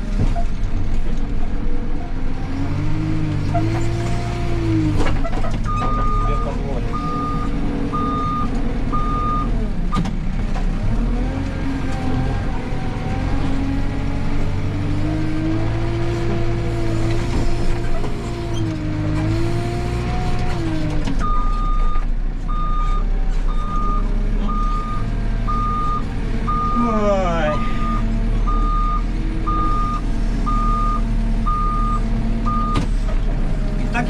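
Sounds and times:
diesel engine revving: 0:00.8 - 0:34.0
reversing alarm beeps: 0:05.7 - 0:09.5, 0:21.2 - 0:26.8, 0:27.6 - 0:32.8.

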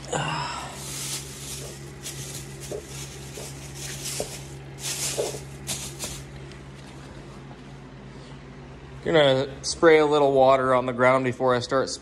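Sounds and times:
portable heater humming: 0:00.0 - 0:12.0
crinkly rustling and handling: 0:00.7 - 0:07.3.

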